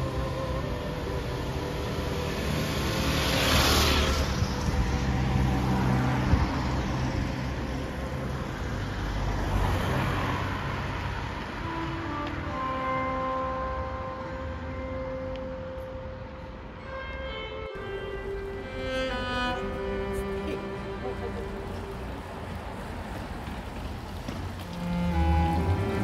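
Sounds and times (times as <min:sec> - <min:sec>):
faint vehicle passing: 0:00.0 - 0:12.7, 0:17.8 - 0:26.0.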